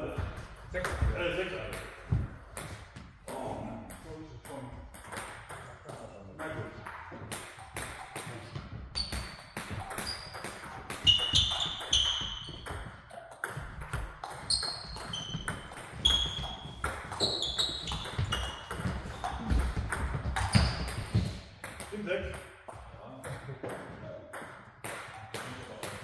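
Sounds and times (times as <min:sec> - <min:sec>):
table tennis balls clicking: 0:09.0 - 0:22.5.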